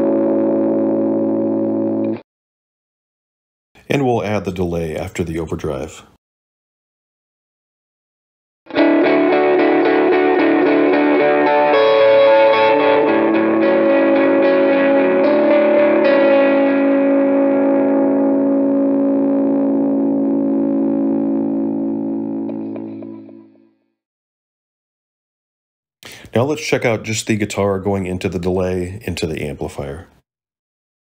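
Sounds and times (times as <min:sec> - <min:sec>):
overdriven electric guitar chords: 0:00.0 - 0:02.2, 0:08.7 - 0:23.8.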